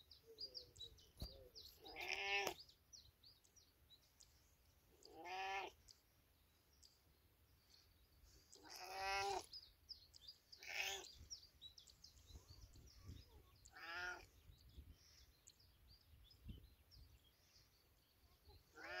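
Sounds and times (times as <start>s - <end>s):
cat meowing: 1.9s - 2.6s, 5.1s - 5.7s, 8.6s - 9.5s, 13.7s - 14.3s, 18.8s - 19.0s.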